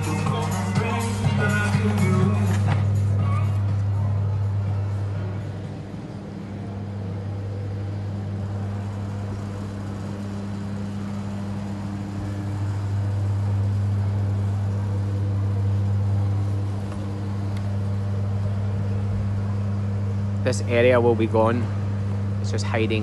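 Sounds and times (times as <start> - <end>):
higher hum: 0.0 - 23.0
low mechanical hum: 0.0 - 23.0.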